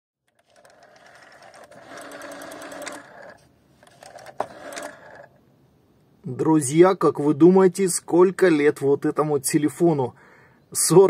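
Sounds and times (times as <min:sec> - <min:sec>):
rotary telephone dial whirring: 0:00.2 - 0:05.4.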